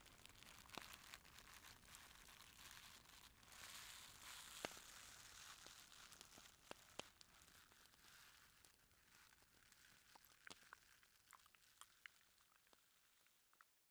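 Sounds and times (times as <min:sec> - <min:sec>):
lip and tongue clicks: 0:10.1 - 0:12.8.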